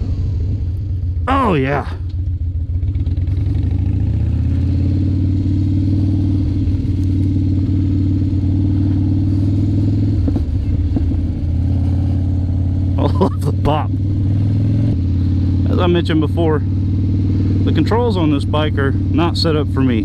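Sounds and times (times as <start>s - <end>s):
motorcycle engine running: 0.0s - 20.0s
exhaust pops: 8.8s - 11.9s.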